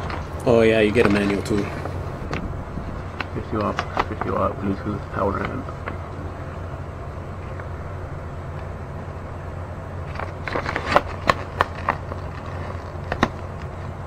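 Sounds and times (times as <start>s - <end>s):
paper rustling and crinkling: 0.0s - 2.0s, 10.0s - 14.0s
low hum: 0.0s - 14.0s.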